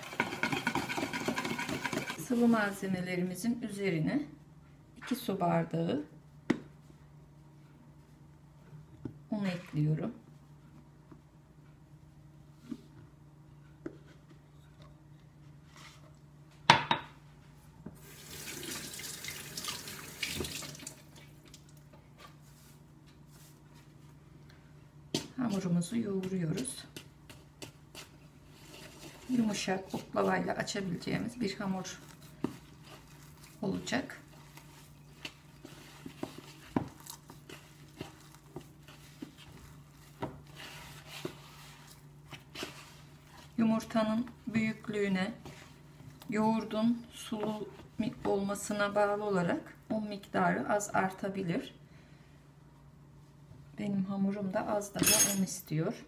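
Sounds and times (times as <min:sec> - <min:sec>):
hands kneading dough: 0:21.4 - 0:50.7.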